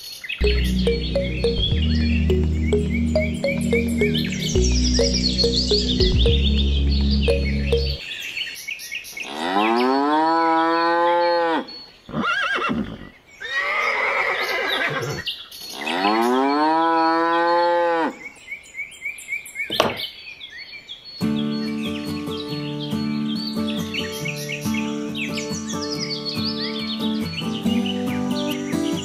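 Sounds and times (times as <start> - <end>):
music: 0.4 - 8.0, 21.2 - 29.0
faint bird chirping: 18.2 - 29.0.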